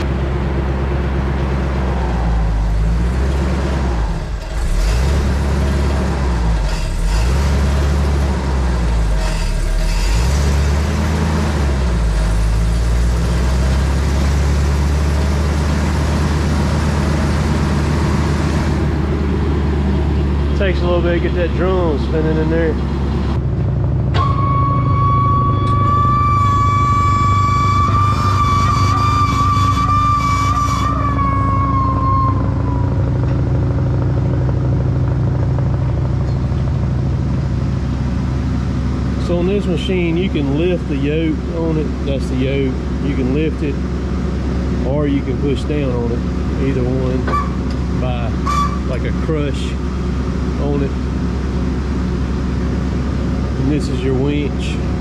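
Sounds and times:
wood chipper engine running: 0.0s - 55.0s
high whine: 44.8s - 55.0s.

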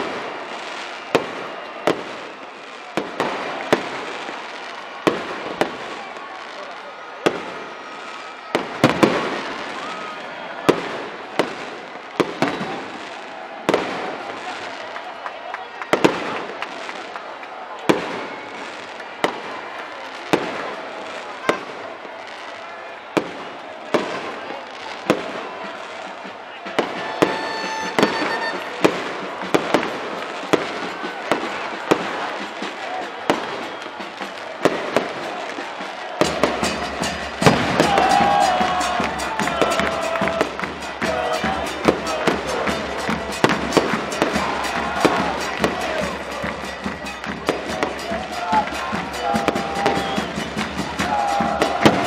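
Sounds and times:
crowd noise: 0.0s - 52.0s
firecrackers banging: 23.2s - 52.0s.

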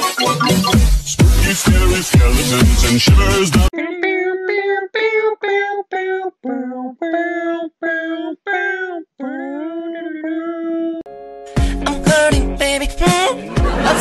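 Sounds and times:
electronic dance music: 0.0s - 3.7s
high voice singing short notes: 3.7s - 11.1s.

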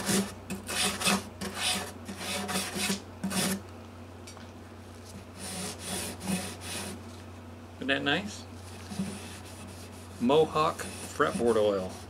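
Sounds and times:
rubbing strokes on guitar bridge: 8.7s - 12.0s.

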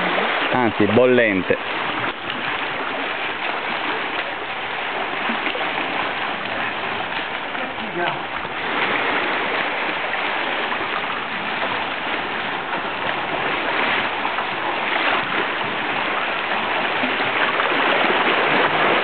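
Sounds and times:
sea water lapping against rocks: 0.0s - 19.0s.

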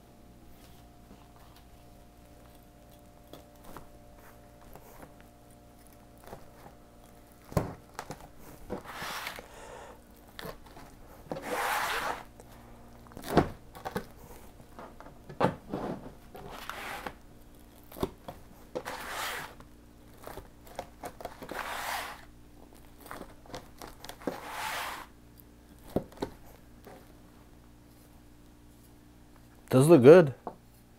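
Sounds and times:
knife sawing through pizza crust: 8.8s - 9.5s, 11.4s - 12.3s, 16.5s - 17.2s, 18.8s - 19.6s, 21.4s - 22.3s, 24.2s - 25.1s.

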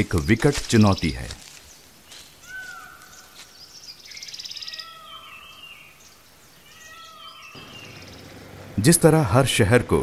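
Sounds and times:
meow-like bird call: 2.4s - 3.0s, 4.6s - 5.7s, 6.6s - 8.0s
fast high bird trill: 6.6s - 8.5s.

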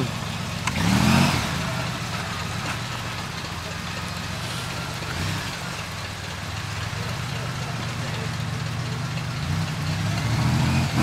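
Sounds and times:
off-road vehicle engine under load: 0.0s - 11.0s.

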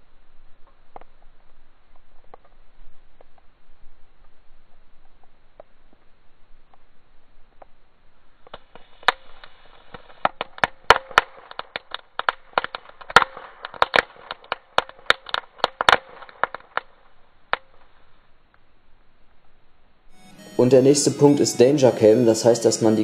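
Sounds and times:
firework crackles: 0.6s - 18.2s.

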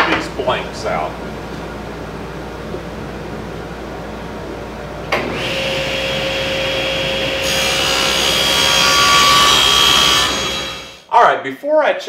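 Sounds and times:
table saw motor humming: 5.0s - 11.0s.

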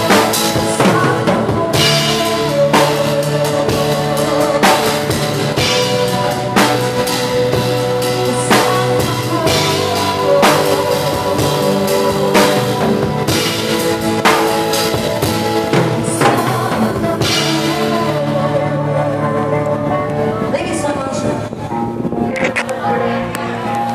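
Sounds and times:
loud music with drum kit: 0.0s - 18.9s.

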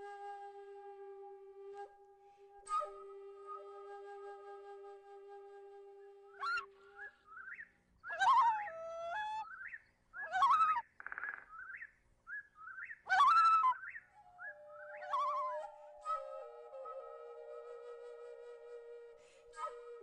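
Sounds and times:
bird chirps: 9.4s - 16.0s
rising bird whistles: 11.5s - 17.6s.

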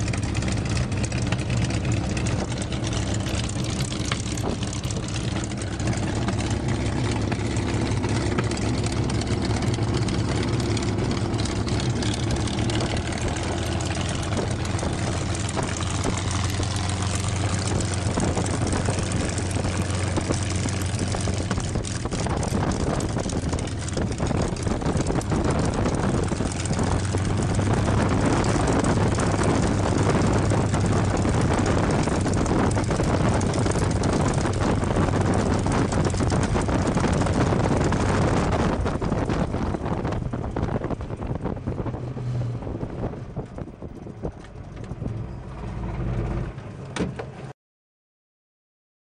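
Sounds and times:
aircraft engine idling: 0.0s - 42.0s
wind on microphone: 0.0s - 46.6s
propeller winding down: 0.0s - 47.5s.

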